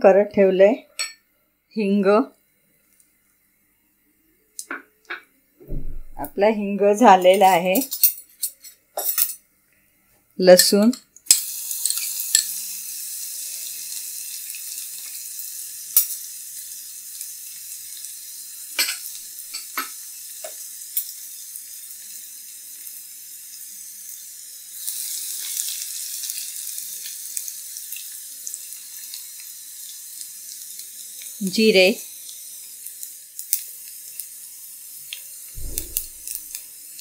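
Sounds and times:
garlic sizzling in hot oil: 0:10.4 - 0:37.0.

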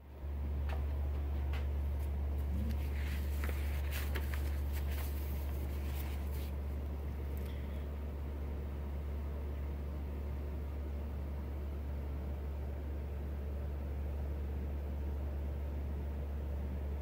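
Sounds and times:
low room hum: 0:00.0 - 0:17.0
faint handling clicks and rustles: 0:00.7 - 0:07.8.

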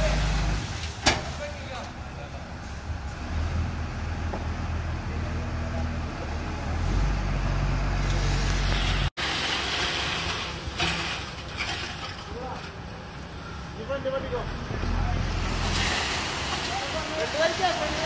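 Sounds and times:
sand sliding off truck bed: 0:08.0 - 0:12.8, 0:15.3 - 0:18.0.

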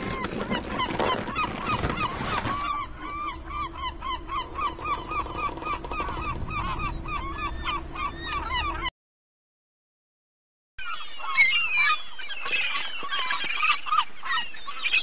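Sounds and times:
birds honking: 0:00.0 - 0:08.9.

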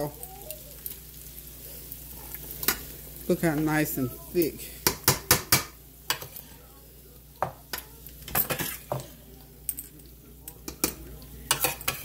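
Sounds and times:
spoon scraping a pot: 0:10.7 - 0:12.0.

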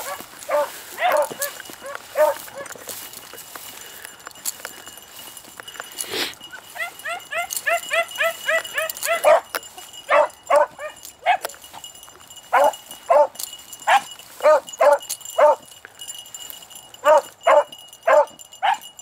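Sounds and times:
dogs barking: 0:00.0 - 0:03.0, 0:06.4 - 0:11.6, 0:12.4 - 0:15.7, 0:17.0 - 0:19.0.

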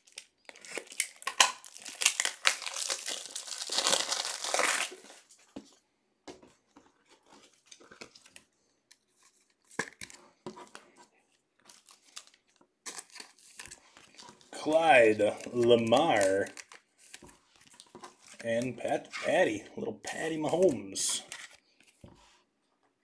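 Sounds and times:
plastic wrapper tearing and crinkling: 0:00.0 - 0:05.3, 0:11.6 - 0:18.4.

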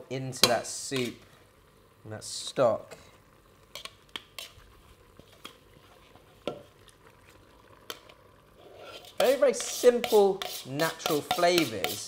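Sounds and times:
tongs clicking against metal pot: 0:09.6 - 0:12.0.

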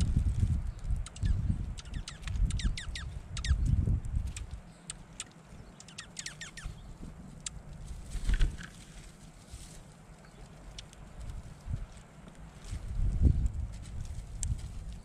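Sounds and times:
small songbirds chirping: 0:00.0 - 0:11.7.

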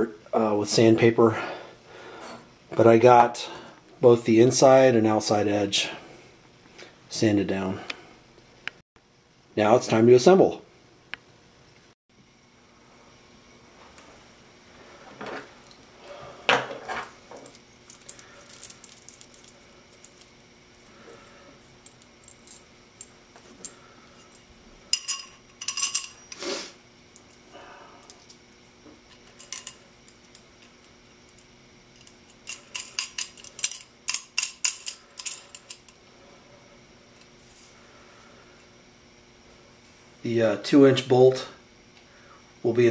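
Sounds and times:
metal tubing and bolts clinking: 0:21.9 - 0:26.4, 0:29.1 - 0:30.8, 0:32.0 - 0:36.0.

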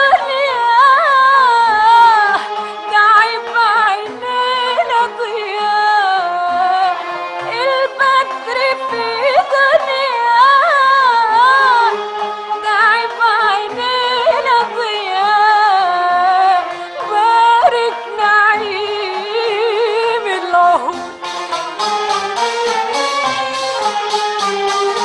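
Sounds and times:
sustained accompanying notes: 0:16.3 - 0:25.0.

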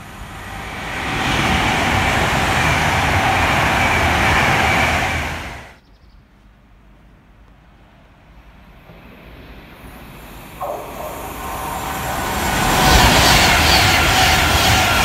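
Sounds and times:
train passing with rail noise: 0:00.0 - 0:05.8, 0:07.2 - 0:15.0
steady tone: 0:08.6 - 0:15.0.

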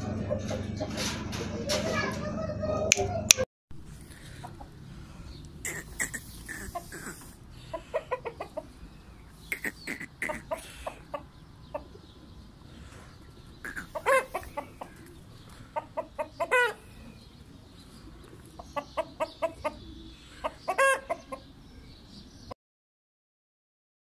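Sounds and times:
rooster clucking: 0:00.0 - 0:03.4, 0:04.0 - 0:21.6
rooster drawn-out calls: 0:13.6 - 0:15.0.

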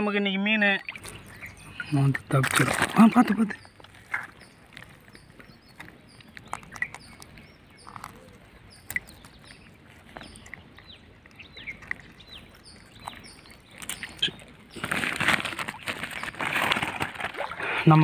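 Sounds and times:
birds chirping: 0:00.0 - 0:18.0
water dripping: 0:00.8 - 0:14.8
water sloshing and splashing: 0:00.8 - 0:18.0.

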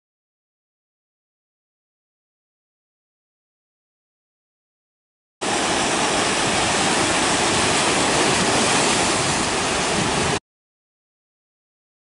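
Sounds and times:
waves washing over rocks: 0:05.4 - 0:10.4.

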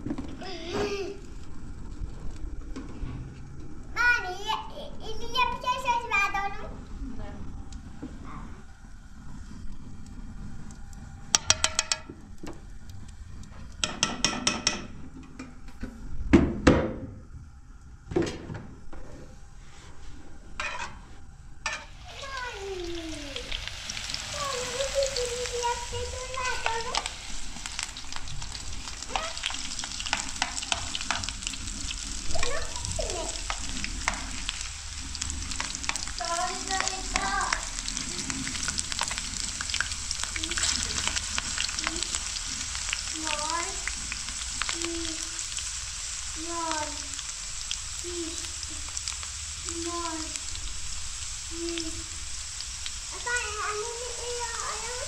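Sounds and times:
potatoes sizzling in frying pan: 0:20.6 - 0:55.0.

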